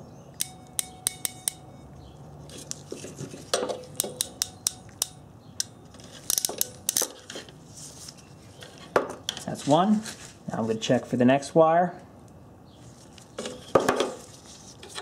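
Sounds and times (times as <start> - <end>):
ratcheting crimper clicking: 4.0 - 7.2.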